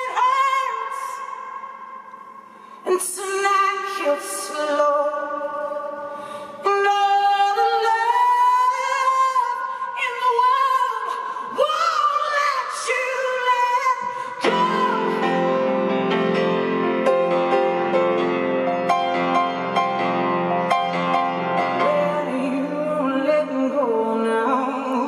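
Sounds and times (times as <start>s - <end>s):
woman singing: 0.0s - 1.8s, 2.8s - 16.0s, 21.8s - 25.0s
grand piano chords: 14.4s - 23.2s.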